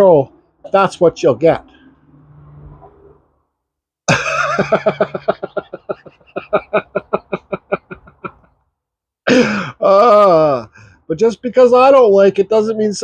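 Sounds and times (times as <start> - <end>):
man laughing: 4.1 - 8.5, 9.3 - 10.7.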